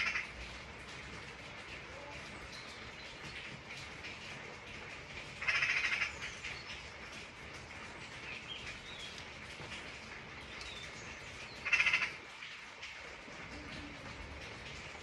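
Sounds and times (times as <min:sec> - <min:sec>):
steady rain falling: 0:00.0 - 0:15.0.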